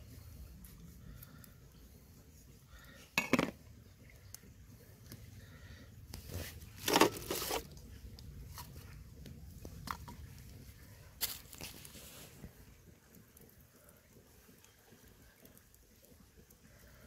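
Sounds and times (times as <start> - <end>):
plastic containers clattering on a plate: 3.2 - 3.6, 6.8 - 7.7.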